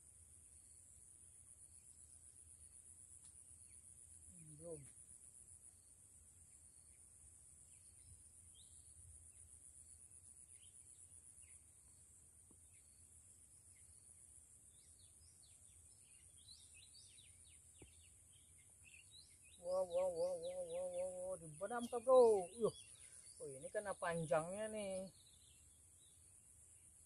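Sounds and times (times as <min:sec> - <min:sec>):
high-pitched insect drone: 0:19.5 - 0:22.8.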